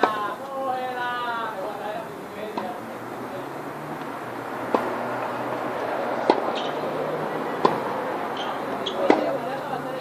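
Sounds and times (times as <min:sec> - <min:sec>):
tennis ball struck with racket: 0:00.0 - 0:00.3, 0:02.5 - 0:02.8, 0:04.0 - 0:05.4, 0:06.2 - 0:06.9, 0:07.6 - 0:09.5.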